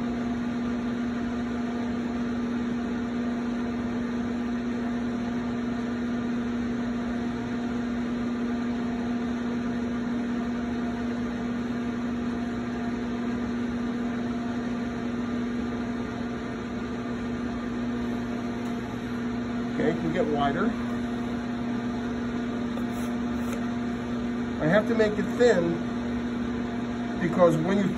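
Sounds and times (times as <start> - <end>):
potter's wheel motor hum: 0.0 - 27.9.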